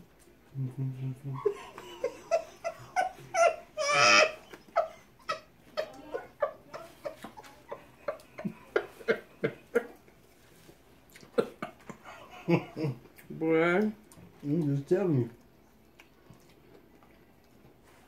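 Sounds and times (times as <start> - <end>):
woman laughing: 0.8 - 10.1, 11.3 - 13.0.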